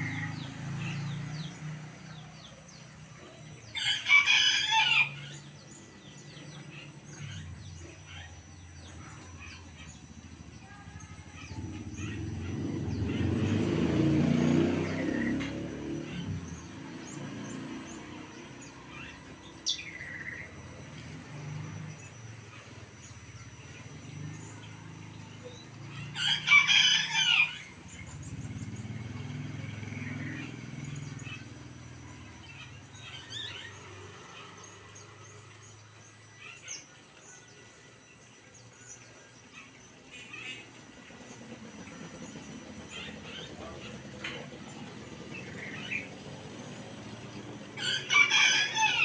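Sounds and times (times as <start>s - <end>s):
rooster crowing: 3.7s - 5.5s, 26.0s - 28.1s, 47.7s - 49.0s.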